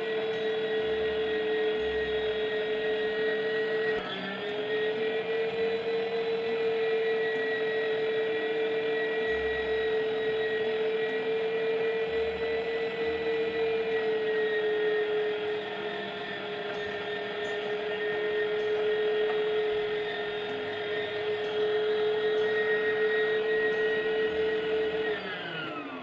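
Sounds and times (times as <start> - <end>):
electric meat grinder whining: 0.0 - 26.0.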